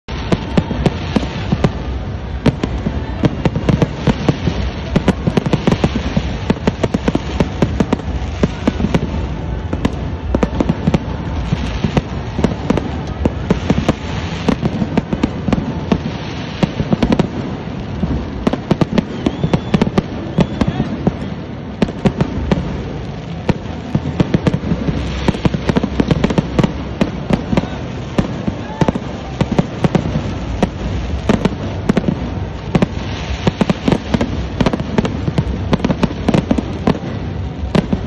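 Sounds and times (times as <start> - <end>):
fireworks crackling and banging: 0.0 - 38.0
steady background din: 0.1 - 38.0.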